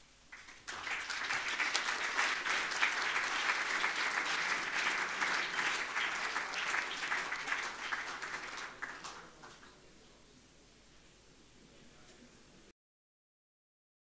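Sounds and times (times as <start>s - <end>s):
audience applauding: 0.3s - 9.8s.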